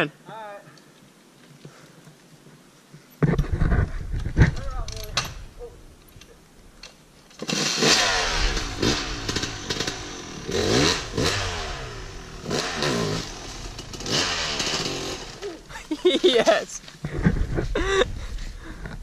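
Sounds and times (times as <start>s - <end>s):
dirt bike engine revving: 7.4s - 16.4s.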